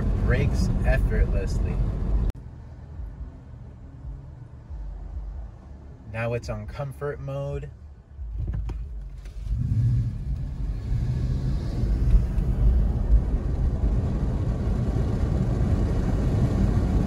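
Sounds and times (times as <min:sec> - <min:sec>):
tyre and road noise rumble: 0:00.0 - 0:17.0.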